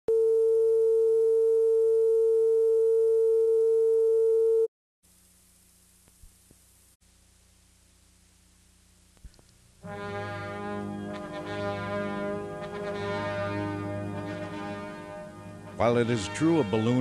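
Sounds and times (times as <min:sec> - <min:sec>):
faint hiss: 0:05.0 - 0:09.9.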